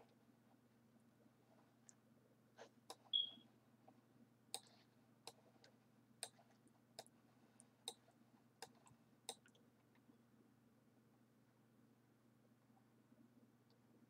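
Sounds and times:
faint low hum: 0.0 - 14.0
computer mouse clicks: 4.6 - 5.4, 6.2 - 7.1, 8.6 - 9.6.

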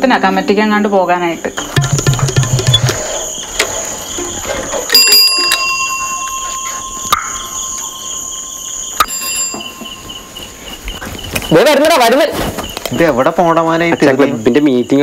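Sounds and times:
crickets chirring: 0.0 - 15.0
metallic bell ringing: 4.9 - 10.6.

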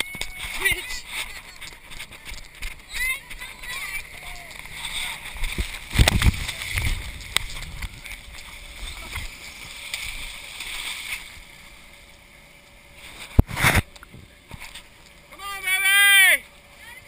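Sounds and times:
water splashing and rushing: 0.0 - 12.2.

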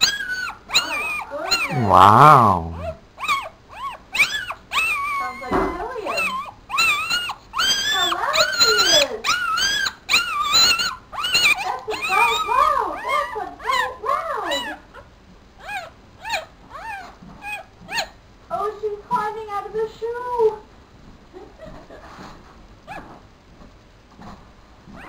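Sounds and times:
puppy crying high squeals: 0.0 - 1.8, 2.8 - 5.5, 6.1 - 13.8.

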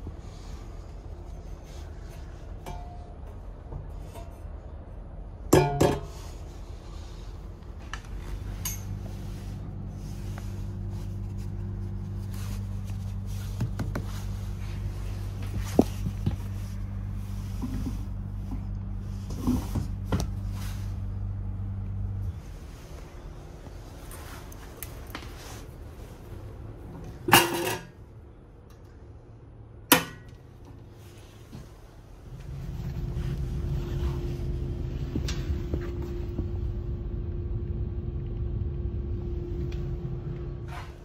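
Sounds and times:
train low hum: 0.0 - 41.0.

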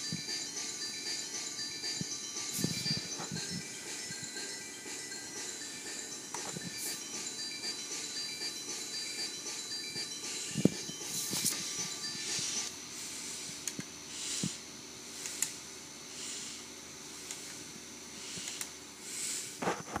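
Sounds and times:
hissing rush from laptop speakers: 10.3 - 19.6.

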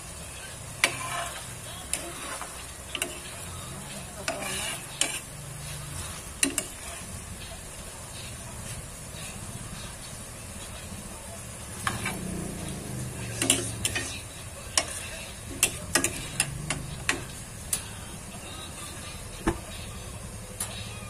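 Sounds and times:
food sizzling in frying pan: 0.0 - 19.4
metal ladle scraping pan: 0.5 - 7.2, 11.8 - 12.4, 13.3 - 17.4.

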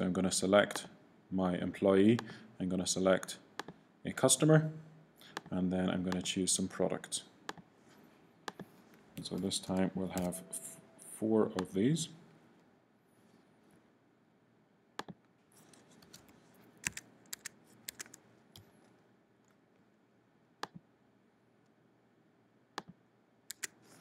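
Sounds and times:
mouse and keyboard clicks: 16.0 - 18.7, 22.8 - 24.0.

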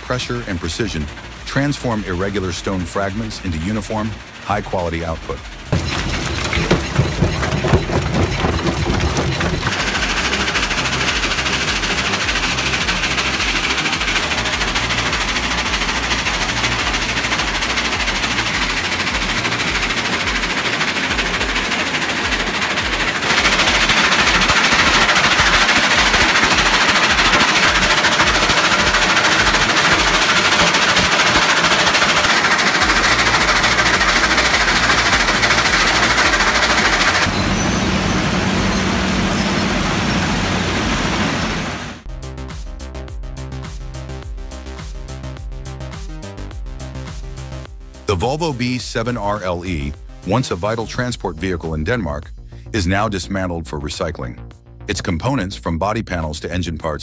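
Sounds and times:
clatter of stone in crusher: 0.0 - 42.1
low pulsing machine rumble: 0.0 - 42.4.

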